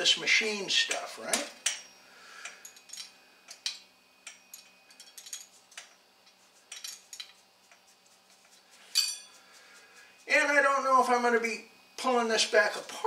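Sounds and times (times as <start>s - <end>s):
wrench clinking on metal fasteners: 0.9s - 7.4s, 8.9s - 9.4s.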